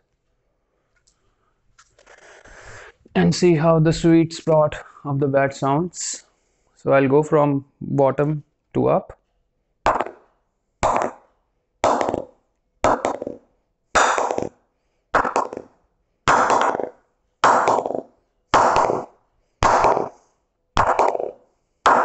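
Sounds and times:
wooden mallet knocking cricket bat: 0:09.9 - 0:10.2, 0:10.8 - 0:11.2, 0:11.8 - 0:12.3, 0:12.9 - 0:13.4, 0:16.3 - 0:16.9, 0:17.5 - 0:19.0.

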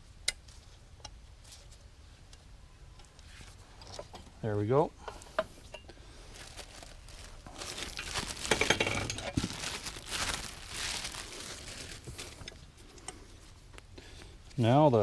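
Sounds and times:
rags and parts rustling: 0:05.0 - 0:14.3.

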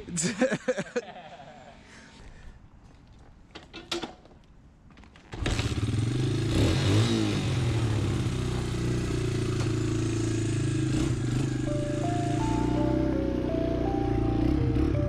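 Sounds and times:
dirt bike engine revving: 0:05.4 - 0:15.0.

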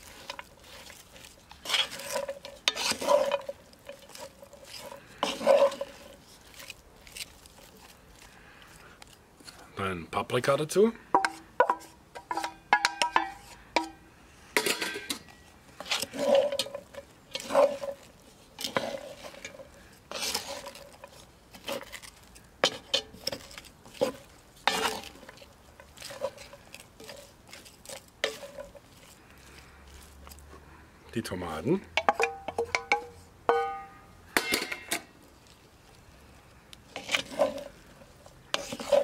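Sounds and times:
wooden spoon scraping in pot: 0:00.0 - 0:09.7, 0:11.1 - 0:13.9, 0:14.6 - 0:30.8, 0:36.8 - 0:39.0
steel bowl clinking on pot: 0:32.0 - 0:35.0.

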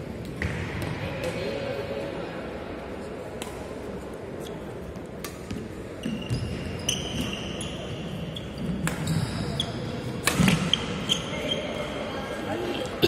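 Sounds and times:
sneakers squeaking on floor: 0:05.5 - 0:12.1
racket striking shuttlecock: 0:10.2 - 0:10.7.

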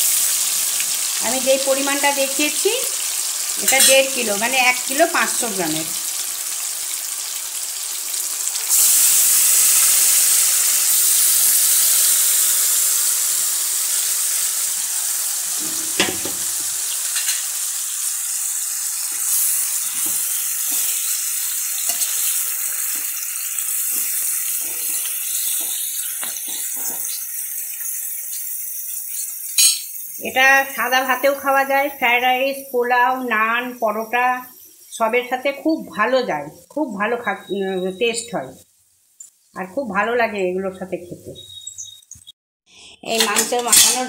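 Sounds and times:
meat sizzling in hot oil: 0:00.0 - 0:36.2
spoon scraping and stirring meat: 0:19.1 - 0:30.2.

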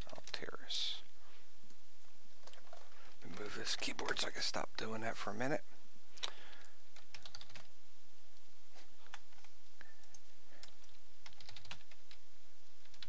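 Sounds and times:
computer keyboard typing: 0:00.0 - 0:00.4, 0:06.6 - 0:07.7, 0:09.1 - 0:12.2.

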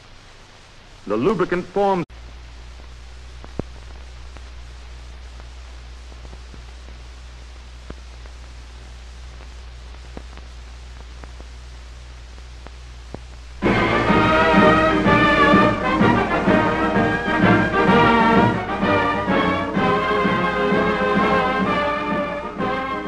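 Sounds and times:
low mains hum: 0:00.0 - 0:23.0
steady hiss: 0:00.0 - 0:23.0
faint clicks: 0:02.8 - 0:13.6.

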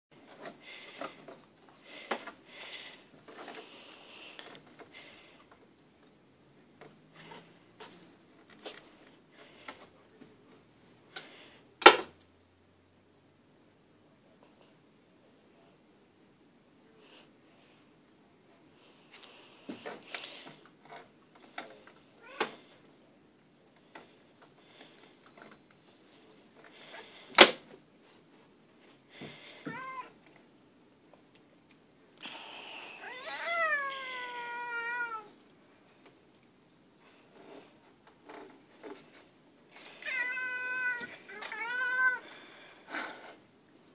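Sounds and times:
cat cries: 0:29.7 - 0:30.2, 0:33.0 - 0:35.3, 0:40.0 - 0:42.2.

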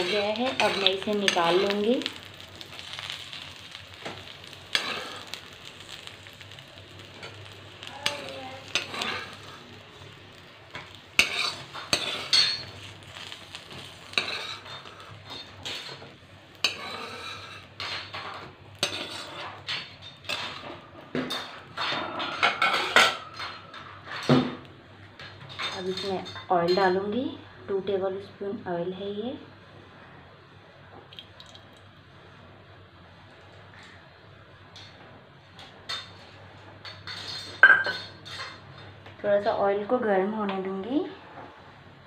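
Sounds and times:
metal spoon scraping metal pan: 0:00.0 - 0:01.9, 0:04.7 - 0:05.4, 0:08.1 - 0:09.6, 0:10.8 - 0:12.8, 0:13.8 - 0:16.0, 0:16.6 - 0:20.7
oil sizzling: 0:00.0 - 0:26.2.

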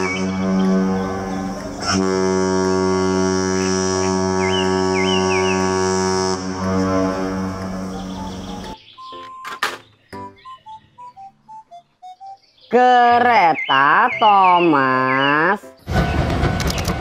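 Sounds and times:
background music: 0:00.0 - 0:05.7, 0:06.3 - 0:17.0
ship's horn blast: 0:00.0 - 0:08.8.

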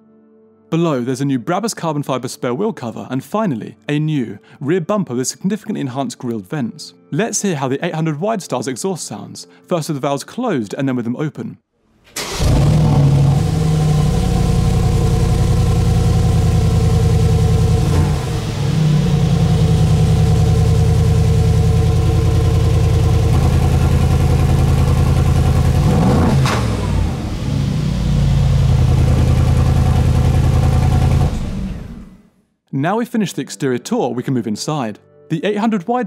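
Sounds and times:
loud car engine and exhaust: 0:12.4 - 0:32.2.

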